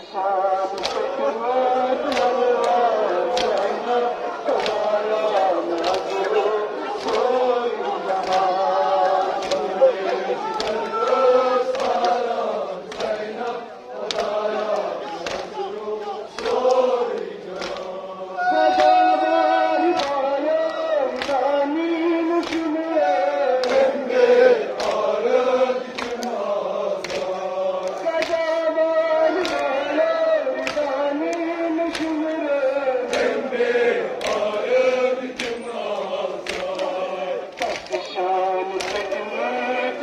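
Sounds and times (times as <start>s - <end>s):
men chanting together: 0.0s - 40.0s
chest-beating slaps: 3.4s - 3.7s, 14.0s - 14.4s, 15.2s - 15.5s, 25.9s - 26.3s, 31.9s - 32.2s, 35.4s - 35.6s, 36.4s - 37.0s, 38.8s - 39.2s.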